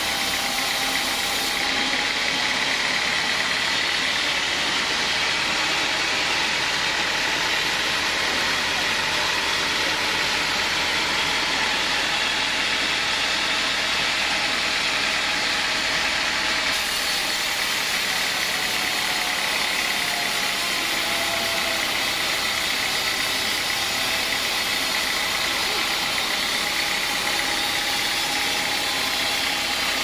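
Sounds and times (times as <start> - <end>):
saw blade hissing in wood: 0.0 - 2.1, 16.7 - 30.0
band saw machine drone: 0.0 - 30.0.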